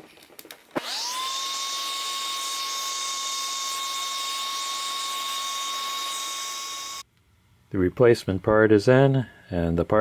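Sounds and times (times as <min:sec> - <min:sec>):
vacuum cleaner running: 0:00.8 - 0:07.0.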